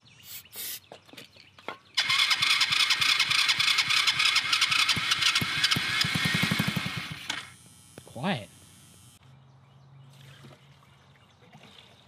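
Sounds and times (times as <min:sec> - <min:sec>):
engine cranking with starter: 0:02.0 - 0:07.6.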